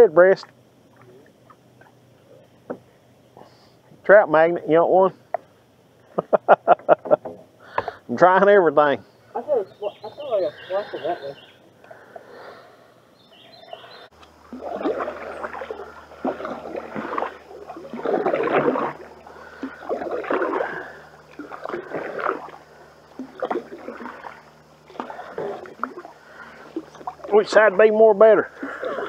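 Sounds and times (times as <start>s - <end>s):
paddles splashing through water: 13.4s - 29.0s.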